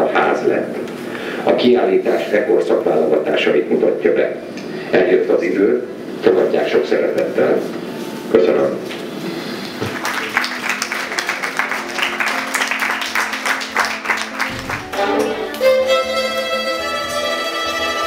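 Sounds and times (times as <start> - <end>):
audience clapping: 9.6 - 16.2
solo violin long notes: 14.6 - 18.0.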